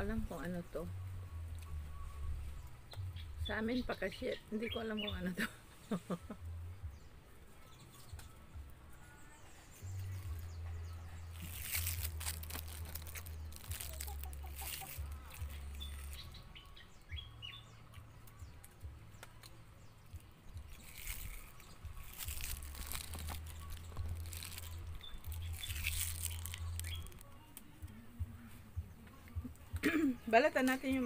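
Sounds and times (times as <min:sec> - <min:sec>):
low rumbling: 0:20.5 - 0:27.2
microphone handling rustles: 0:20.7 - 0:27.2.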